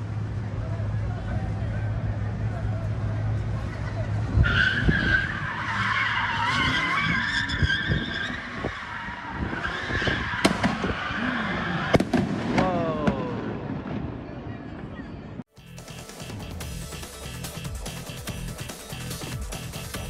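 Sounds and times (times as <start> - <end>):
car tires squealing: 3.6 - 12.0
firework bangs: 11.9 - 14.3.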